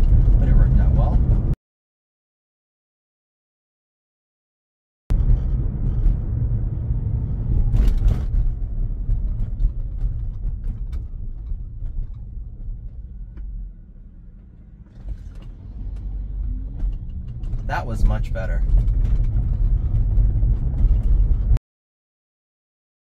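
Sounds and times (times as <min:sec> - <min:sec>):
tyre and road noise: 0:00.0 - 0:01.6, 0:05.1 - 0:21.6.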